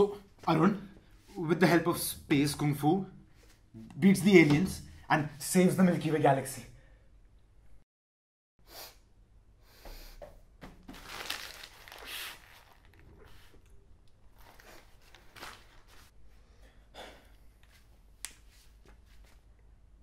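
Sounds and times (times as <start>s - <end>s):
person sniffling and snorting: 8.6s - 9.1s
soft rustles: 17.6s - 19.5s.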